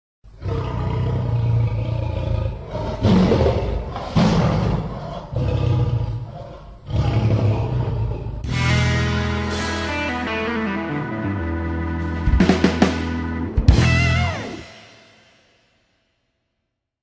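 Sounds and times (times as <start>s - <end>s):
lion roaring: 0.3s - 8.5s.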